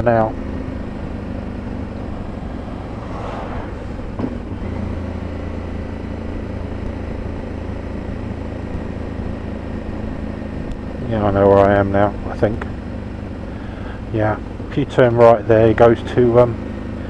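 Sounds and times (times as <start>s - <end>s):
motorcycle engine running: 0.0s - 17.0s
car passing: 0.5s - 7.3s
wind rumble: 0.8s - 7.6s.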